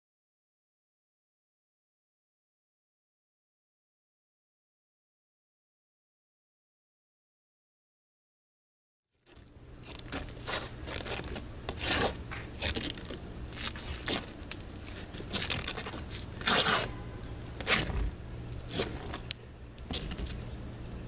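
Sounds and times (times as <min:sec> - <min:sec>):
faint low hum: 0:09.2 - 0:21.0
brush scraping roofing cement: 0:09.8 - 0:17.0, 0:17.6 - 0:19.3.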